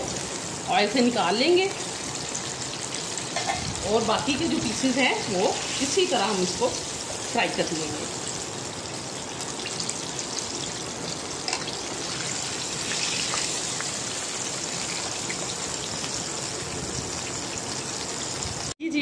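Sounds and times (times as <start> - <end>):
chicken frying in oil: 0.0 - 18.8
oil crackles and pops: 9.3 - 18.7.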